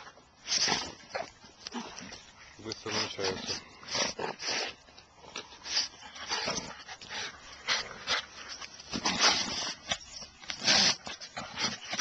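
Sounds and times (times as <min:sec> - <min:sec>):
dog sniffing: 0:03.2 - 0:12.0.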